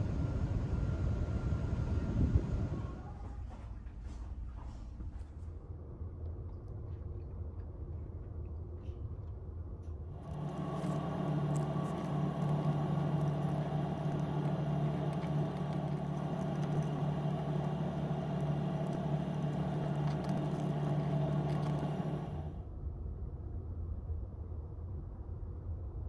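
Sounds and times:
ship engine drone: 0.0s - 3.4s, 10.2s - 22.6s
paper crackling being folded: 10.2s - 22.5s.

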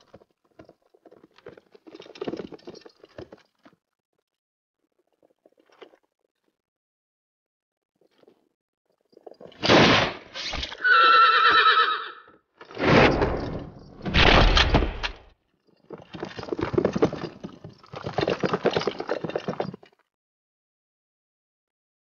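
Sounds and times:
horses galloping: 0.0s - 3.8s, 15.8s - 20.0s
horse whinnying: 10.5s - 12.3s
heavy crashes: 12.8s - 15.2s.

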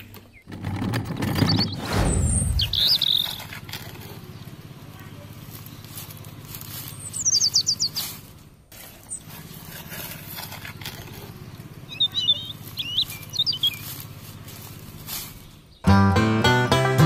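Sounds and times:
small songbird chirping: 1.4s - 8.3s, 9.0s - 9.3s, 10.5s - 15.8s.

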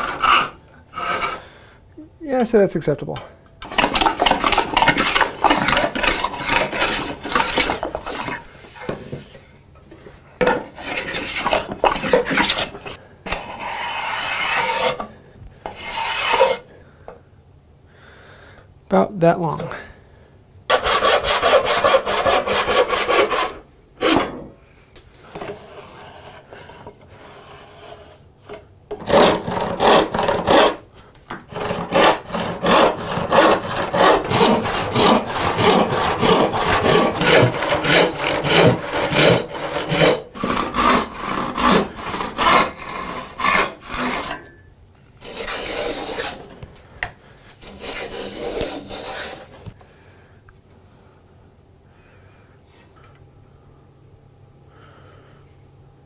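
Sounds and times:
hand plane shaving wood: 0.0s - 1.5s, 3.6s - 9.2s, 10.6s - 15.1s, 15.7s - 16.6s, 20.7s - 24.2s, 29.0s - 30.8s, 31.5s - 44.4s, 45.2s - 46.5s, 47.6s - 49.8s
hand saw cutting wood: 0.0s - 1.5s, 3.6s - 9.0s, 10.5s - 15.1s, 15.7s - 16.6s, 20.7s - 24.3s, 29.0s - 30.9s, 31.5s - 44.6s, 45.2s - 46.6s, 47.6s - 49.8s.

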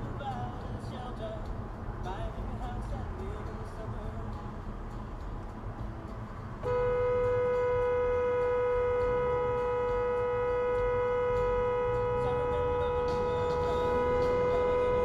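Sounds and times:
car rumbling in traffic: 0.0s - 15.0s
car horn blast: 6.6s - 15.0s.

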